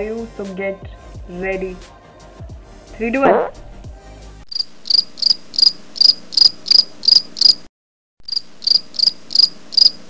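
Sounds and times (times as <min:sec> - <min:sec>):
cricket chirping: 0:04.5 - 0:10.0.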